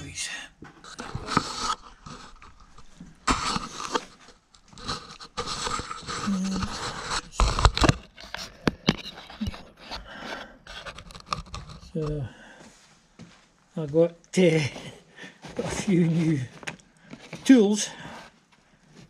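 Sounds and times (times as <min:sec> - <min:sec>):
tools scraping and rustling: 0:00.8 - 0:12.0, 0:15.4 - 0:19.0.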